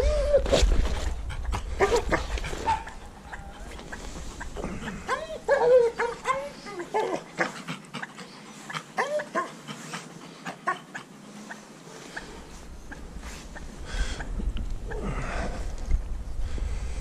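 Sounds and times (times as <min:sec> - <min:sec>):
low rumble: 0:00.0 - 0:06.9, 0:12.4 - 0:17.0
dog whining: 0:04.9 - 0:07.6, 0:09.0 - 0:09.5.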